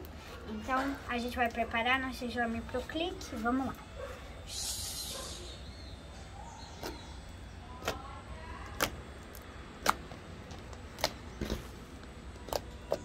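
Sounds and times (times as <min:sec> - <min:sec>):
slime clicking and popping: 0:07.8 - 0:08.0, 0:08.7 - 0:10.1.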